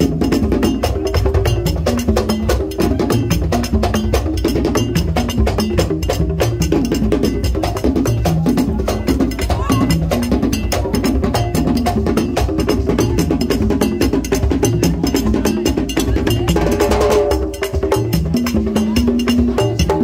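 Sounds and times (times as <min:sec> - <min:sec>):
drums: 0:00.0 - 0:20.0.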